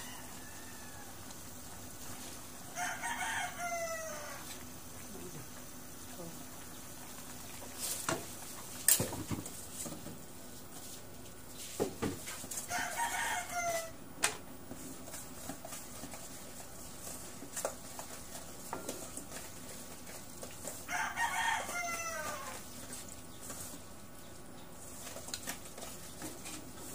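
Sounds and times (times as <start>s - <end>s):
rooster crowing: 0.0s - 1.5s, 2.7s - 4.6s, 12.7s - 14.0s, 20.9s - 22.6s.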